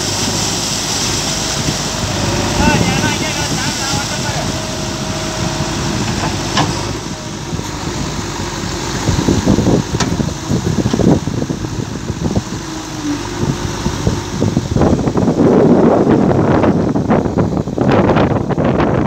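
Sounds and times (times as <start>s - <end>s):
diesel engine running: 0.0s - 19.0s
water rushing: 0.0s - 19.0s
backhoe digging: 4.4s - 15.6s.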